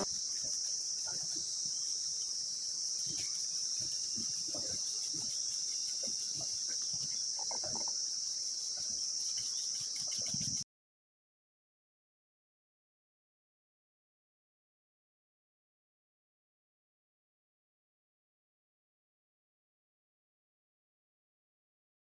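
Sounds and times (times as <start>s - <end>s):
shrill insect chorus: 0.0s - 10.6s.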